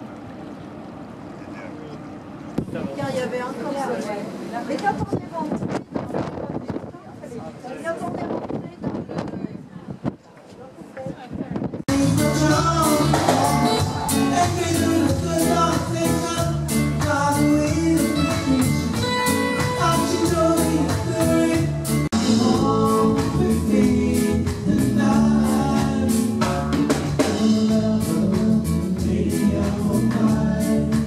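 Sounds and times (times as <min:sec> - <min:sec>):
music with singing and drum beat: 0:11.9 - 0:31.0.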